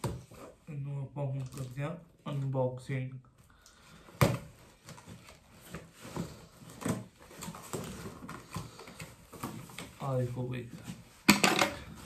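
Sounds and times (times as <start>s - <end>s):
packaging rustling and scraping: 4.1s - 12.0s.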